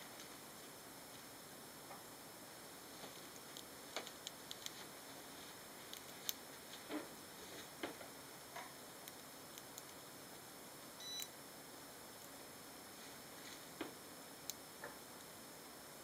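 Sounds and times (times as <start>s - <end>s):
short high-pitched beep: 11.0s - 11.3s.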